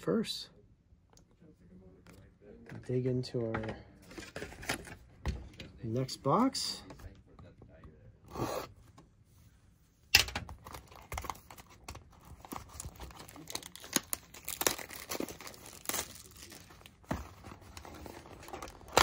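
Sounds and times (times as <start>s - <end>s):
cardboard and packs crinkling: 10.6s - 19.0s
cardboard tearing: 12.4s - 19.0s.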